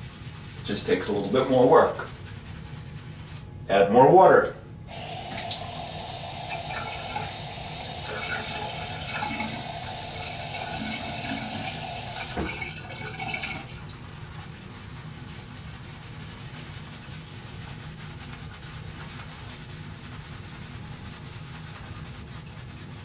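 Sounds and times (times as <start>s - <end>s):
tap running into sink: 5.0s - 13.7s.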